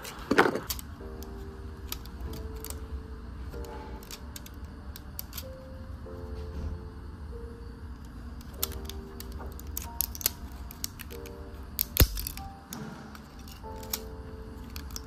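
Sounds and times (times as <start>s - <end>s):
soft background music: 0.0s - 15.0s
loud plastic crack: 8.5s - 14.1s
plastic supports snapping: 8.6s - 14.1s.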